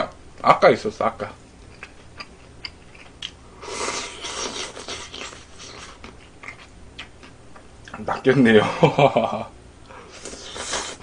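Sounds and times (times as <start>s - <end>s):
quiet chewing with clicks: 1.5s - 3.4s
noodles slurped from a bowl: 3.6s - 5.8s.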